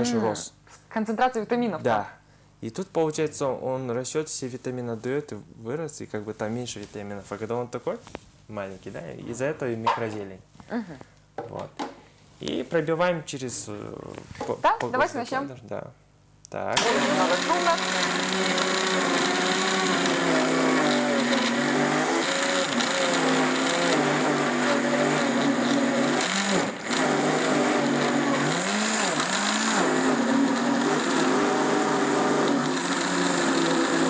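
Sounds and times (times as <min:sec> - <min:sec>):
blender motor running: 0:16.8 - 0:34.0.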